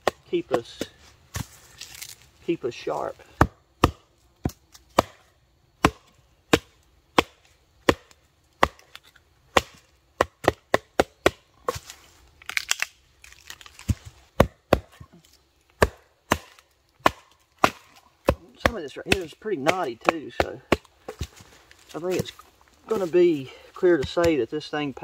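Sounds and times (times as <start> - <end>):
baton knocking knife through wood: 3.4 - 11.8, 13.8 - 15.1, 15.8 - 21.4.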